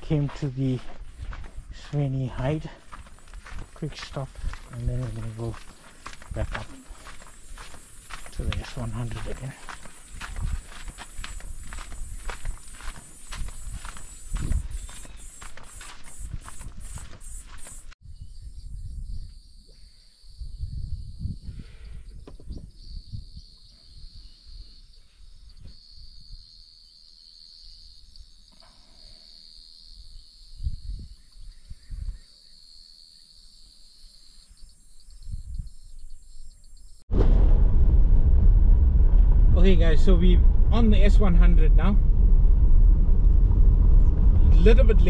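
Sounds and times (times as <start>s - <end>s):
footsteps on a path: 0.0s - 18.0s
insects chirring: 0.0s - 37.0s
low thuds: 37.1s - 45.0s.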